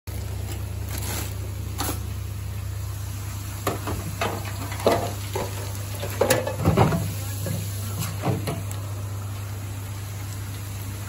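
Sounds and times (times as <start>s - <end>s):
kitchen equipment hum: 0.1s - 11.0s
metal kitchenware clattering: 3.7s - 7.1s.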